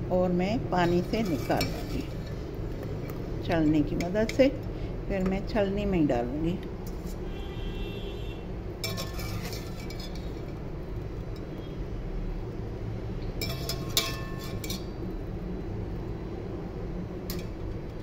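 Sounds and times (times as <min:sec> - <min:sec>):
steady low hum: 0:00.0 - 0:18.0
wire skimmer clinking on metal: 0:00.8 - 0:02.4, 0:08.8 - 0:10.5, 0:13.4 - 0:14.9.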